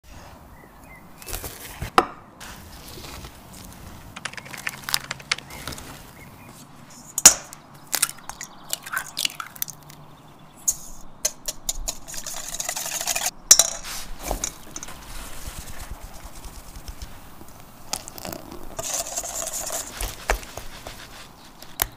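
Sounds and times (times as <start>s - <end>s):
eggs beaten in bowl scraping: 10.8s - 13.4s, 14.1s - 21.9s.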